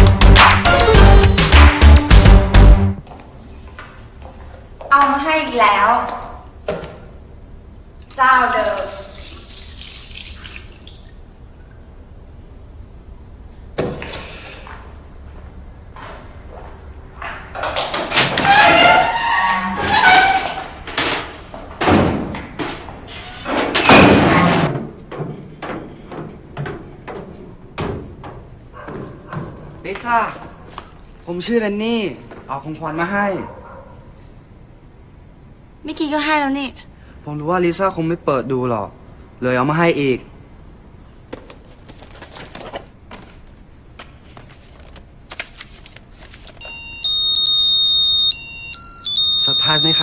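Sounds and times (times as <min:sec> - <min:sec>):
thuds and slam at metal locker: 0:19.8 - 0:22.6, 0:23.6 - 0:25.8.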